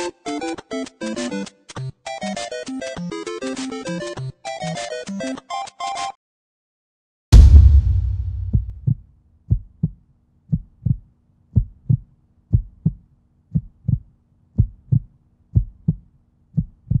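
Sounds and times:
heartbeat thumps: 0:07.4 - 0:11.0, 0:11.6 - 0:16.0, 0:16.6 - 0:17.0.

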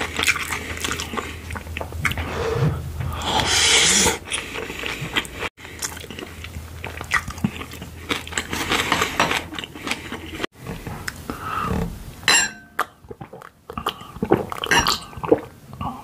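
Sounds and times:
wet chewing clicks and smacks: 0:04.3 - 0:08.6.

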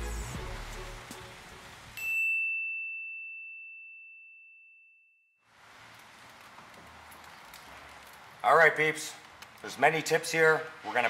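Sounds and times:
high clear chime ding: 0:02.0 - 0:05.2.

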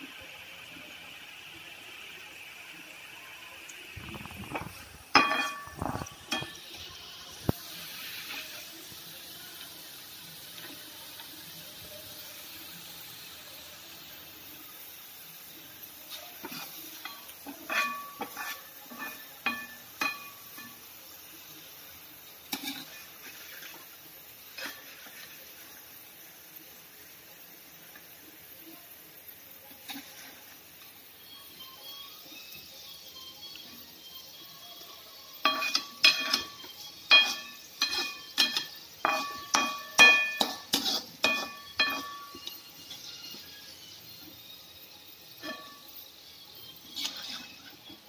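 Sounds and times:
food deep-frying in oil: 0:00.0 - 0:48.0
metal spoon scraping a pan: 0:04.0 - 0:08.8, 0:16.0 - 0:21.3, 0:22.2 - 0:25.7, 0:29.7 - 0:31.0, 0:34.7 - 0:48.0.

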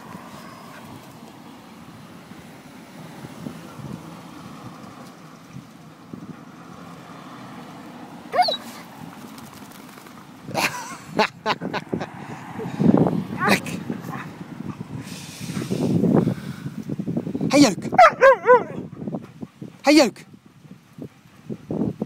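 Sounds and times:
dog yipping: 0:08.3 - 0:08.8, 0:18.0 - 0:18.9.

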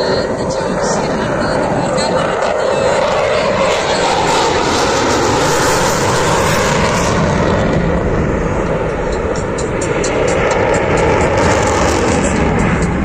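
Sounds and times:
fighter jet flying overhead: 0:00.0 - 0:13.0.

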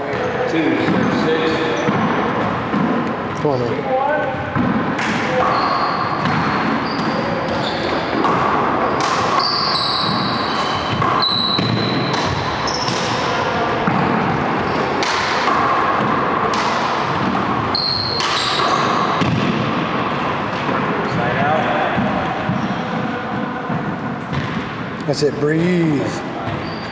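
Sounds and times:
sneakers squeaking on floor: 0:00.0 - 0:24.8, 0:25.6 - 0:26.9
ball smacking walls and floor: 0:04.5 - 0:24.8.

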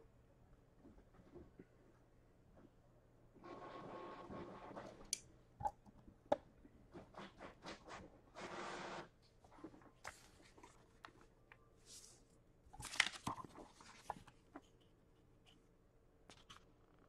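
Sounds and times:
paper rustling and sliding: 0:11.8 - 0:14.4.

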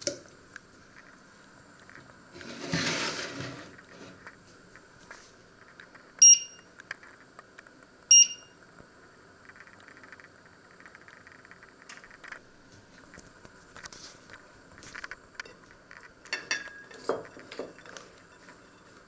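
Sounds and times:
short electronic beeps: 0:06.2 - 0:06.6, 0:08.1 - 0:08.5.

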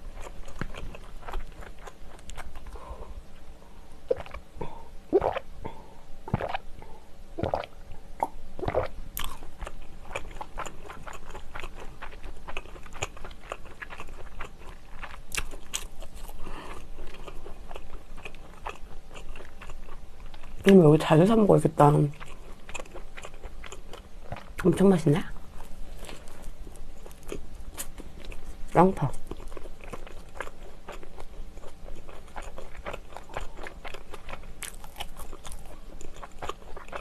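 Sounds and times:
chewing with wet mouth clicks: 0:00.1 - 0:02.8, 0:04.1 - 0:04.4, 0:07.4 - 0:20.8, 0:22.1 - 0:24.7, 0:25.6 - 0:28.5, 0:29.2 - 0:37.0
gulps of milk swallowed: 0:04.1 - 0:08.9.

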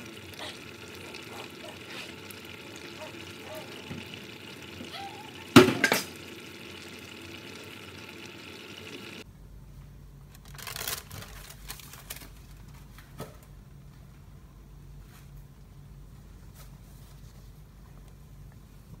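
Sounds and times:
metal cookware clanking: 0:05.5 - 0:06.3.

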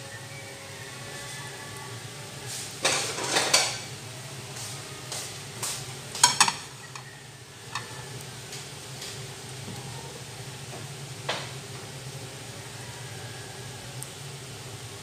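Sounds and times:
omelette sizzling faintly: 0:00.0 - 0:15.0
utensils scraping rattle: 0:06.2 - 0:08.0.

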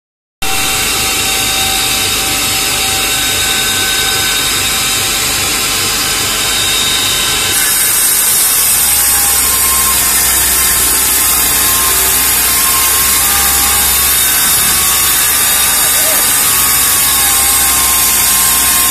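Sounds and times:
cutting head grinding glass: 0:00.4 - 0:18.9
cutting machine rushing hiss: 0:00.5 - 0:18.9
low hum: 0:08.2 - 0:18.7.

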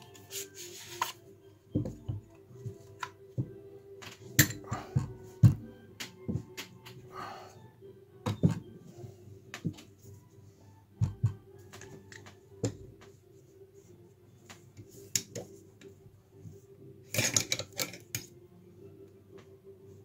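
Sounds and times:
metal rifle parts clicking: 0:17.1 - 0:18.3.

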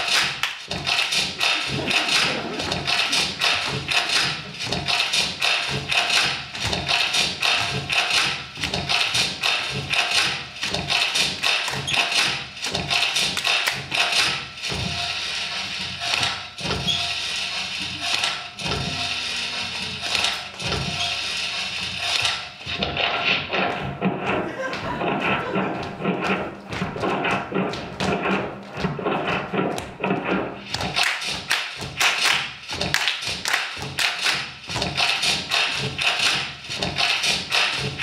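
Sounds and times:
percussive dance music: 0:00.0 - 0:38.0
rhythmic hand claps: 0:00.0 - 0:38.0
foot taps and stamps: 0:22.2 - 0:32.0, 0:32.7 - 0:38.0.

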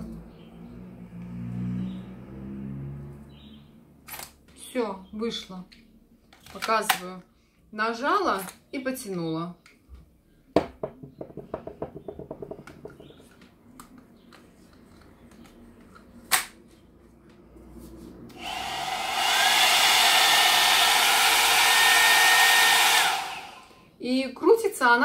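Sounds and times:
hot air brush rush of air: 0:18.4 - 0:23.8.

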